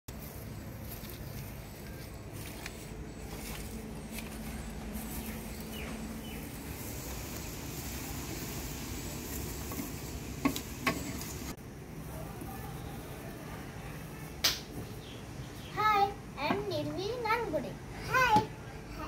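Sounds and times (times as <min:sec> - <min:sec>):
steady hiss: 0:00.1 - 0:16.8.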